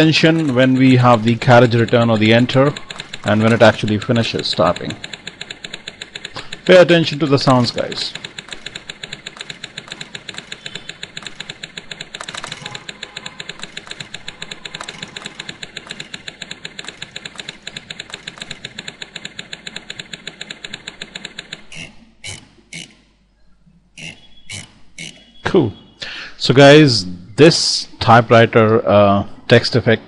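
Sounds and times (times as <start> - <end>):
typewriter carriage return: 0.0 - 22.4
typewriter keystroke clicks: 0.0 - 22.9.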